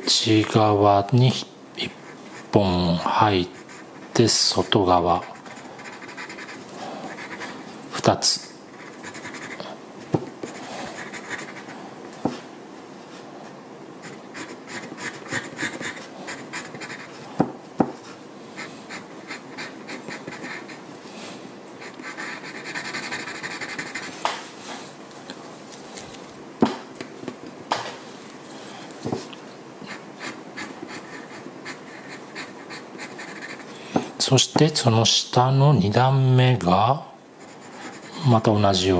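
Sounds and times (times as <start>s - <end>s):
pencil scratching on paper: 3.4s - 7.7s, 8.7s - 9.7s, 10.4s - 11.7s, 14.0s - 17.2s, 18.6s - 20.8s, 21.8s - 24.2s, 29.9s - 33.8s, 37.4s - 38.3s
pencil ticking on paper: 3.5s - 7.5s, 8.8s - 9.7s, 10.4s - 11.7s, 14.0s - 17.1s, 21.8s - 24.2s, 29.9s - 33.7s.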